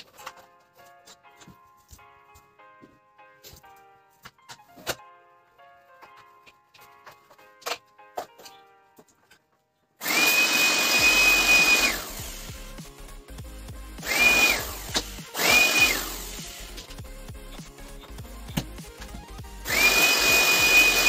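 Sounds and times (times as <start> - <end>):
electric motor whining: 10.0 - 12.7, 14.0 - 17.0, 19.7 - 21.0.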